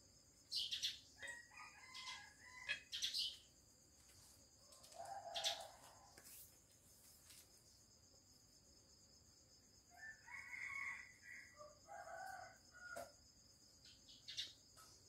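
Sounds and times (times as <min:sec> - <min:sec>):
rooster crowing: 0:01.2 - 0:02.8, 0:09.9 - 0:13.1.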